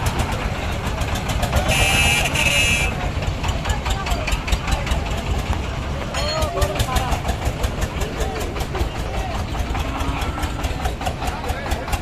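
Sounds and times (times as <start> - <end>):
truck diesel engine knocking: 0.0 - 12.0
high horn: 1.6 - 3.0.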